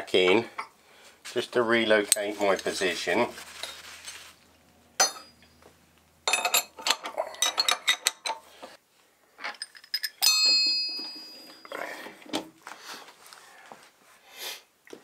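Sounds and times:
metal tools clinking: 2.0s - 8.5s, 9.4s - 12.0s
struck metal ringing: 4.6s - 7.9s.

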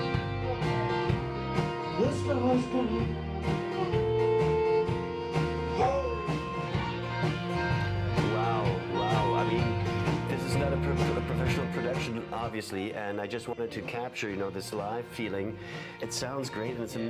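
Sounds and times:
steady drum beat: 0.0s - 12.7s
electric guitar: 0.0s - 17.0s
strummed acoustic guitar: 0.0s - 17.0s.

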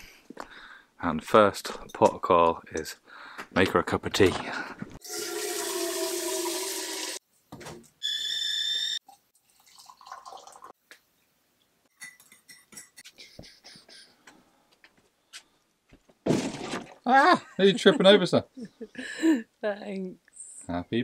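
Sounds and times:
tap water running into kettle: 5.0s - 7.2s
water poured into mug: 5.0s - 7.2s, 9.1s - 10.8s
kettle whistling: 8.0s - 9.0s
faint clinks and knocks: 11.9s - 13.1s.

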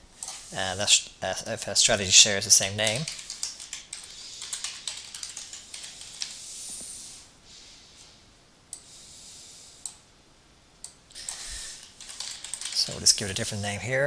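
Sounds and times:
keyboard typing: 2.6s - 6.4s, 11.2s - 13.3s
faint hiss: 5.4s - 10.1s.

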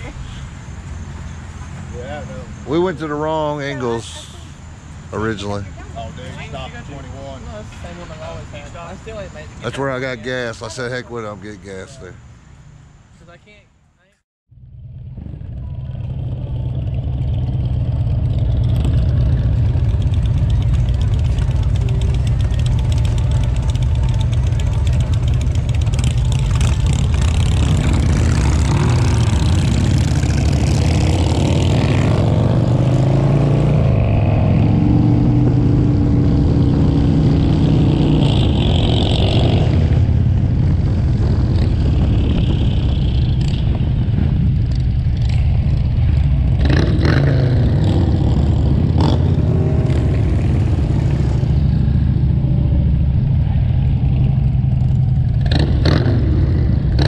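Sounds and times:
motorcycle engines idling: 0.0s - 13.4s, 14.6s - 32.0s, 35.5s - 57.0s
motorcycles accelerating away: 14.6s - 57.0s.

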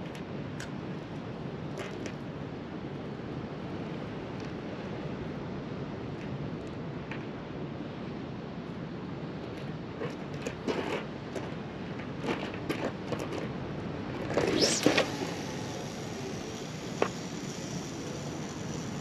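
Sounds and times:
wind and sea: 0.0s - 19.0s
brief noisy burst: 14.3s - 19.0s.

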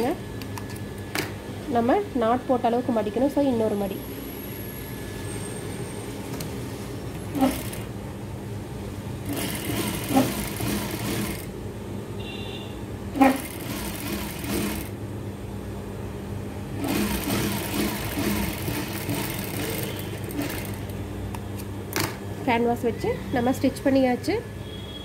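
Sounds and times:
sewing machine stitching: 7.3s - 7.9s, 9.2s - 11.5s, 13.2s - 14.9s, 16.8s - 20.9s.

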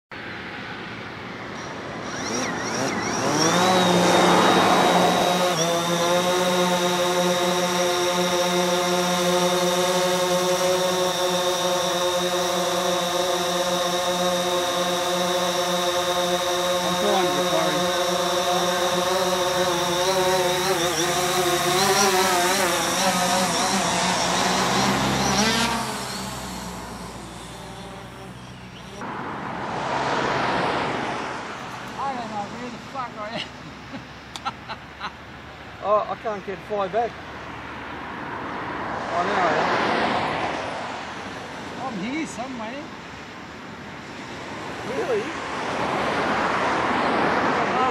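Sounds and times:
quadcopter propeller whine: 0.3s - 47.9s.

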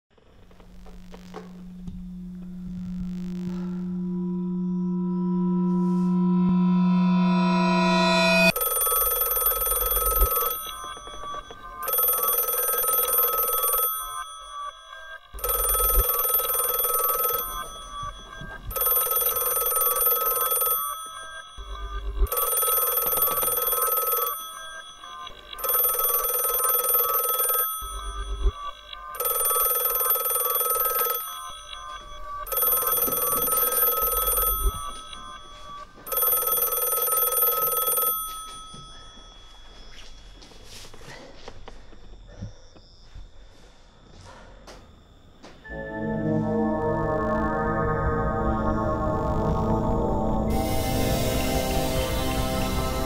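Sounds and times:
telephone ringing: 7.8s - 40.8s.

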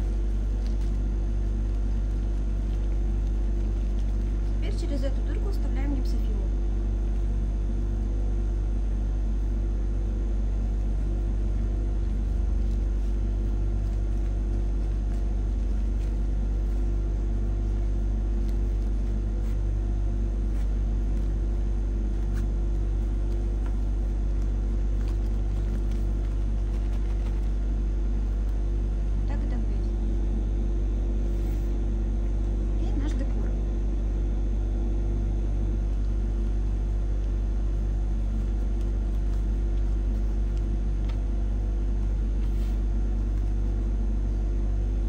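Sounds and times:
plastic film crinkling: 0.0s - 29.2s, 35.8s - 44.4s
low electrical hum: 0.0s - 45.0s.

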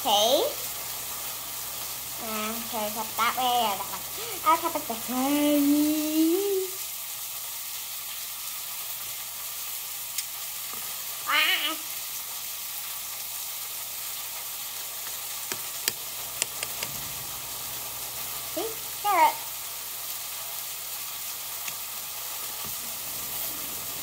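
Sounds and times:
steady hiss: 0.0s - 24.0s
egg slicer clicking through carrots: 15.5s - 17.0s.

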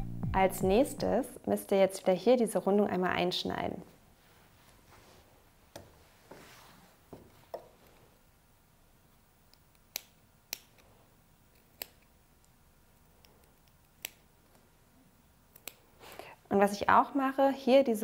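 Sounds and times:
scissors snipping: 11.5s - 12.6s, 13.2s - 14.3s, 15.5s - 15.8s.

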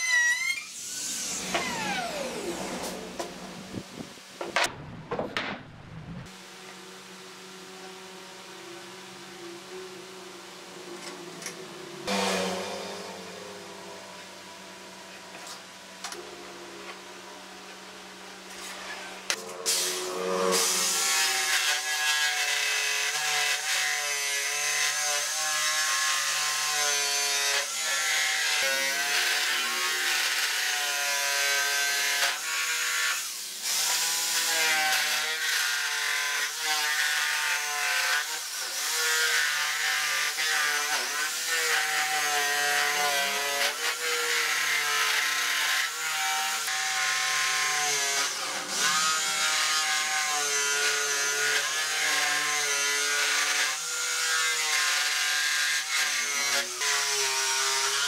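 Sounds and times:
jigsaw motor running: 1.1s - 3.2s.

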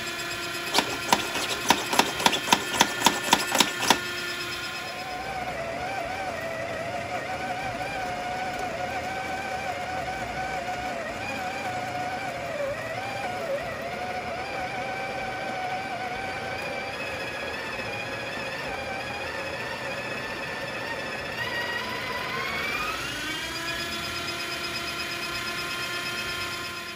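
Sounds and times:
coffee grinder motor whine: 0.0s - 26.9s.

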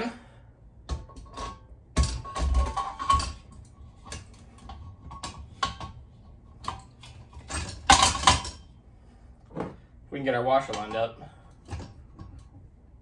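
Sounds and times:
metal knocks and clanks: 0.8s - 8.7s.

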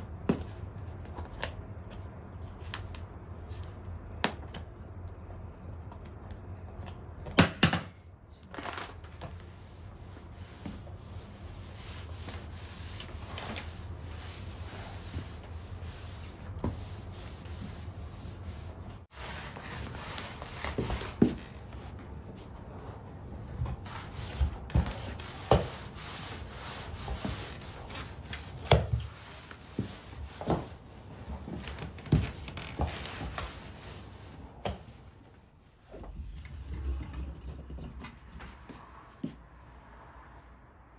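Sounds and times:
mop rubbing on laminate floor: 9.3s - 36.9s.

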